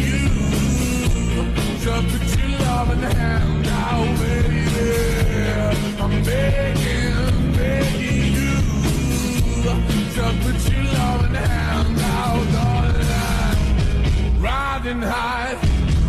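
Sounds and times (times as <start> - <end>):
song with heavy bass and drums: 0.0 - 16.0.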